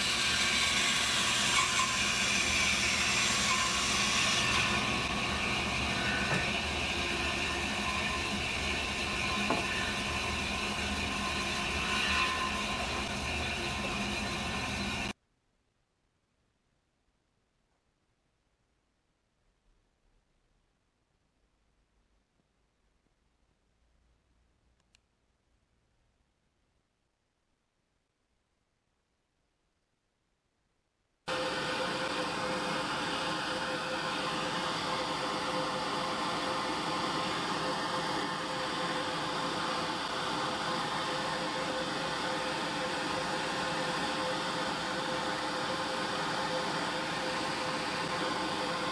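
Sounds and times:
band saw running: 0.0 - 15.2, 31.3 - 48.9.

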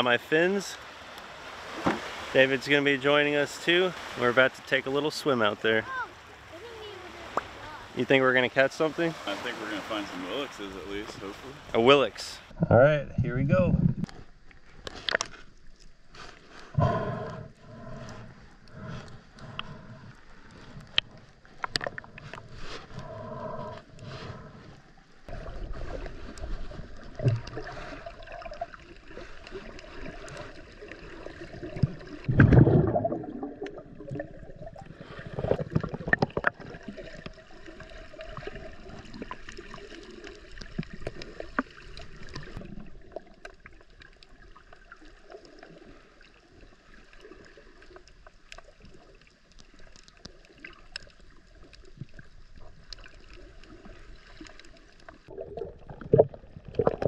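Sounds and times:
loud low water rush: 0.0 - 12.5
muffled water gurgle: 16.7 - 57.0
faint clicks underwater: 20.7 - 23.1, 35.4 - 37.4, 47.8 - 55.2.

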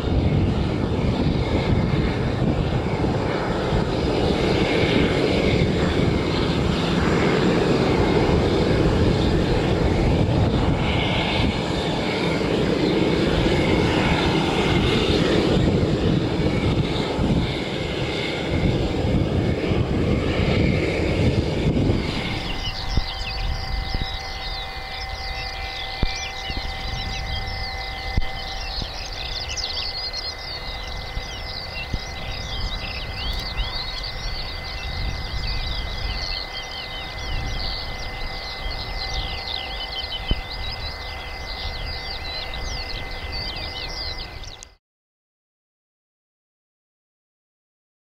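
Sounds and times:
mechanical hum with whining tones: 13.4 - 44.7
small birds chirping: 21.9 - 44.8.

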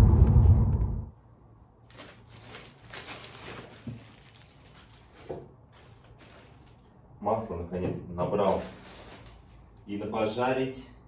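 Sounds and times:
plastic bag rustling: 1.8 - 6.9, 8.4 - 9.7.

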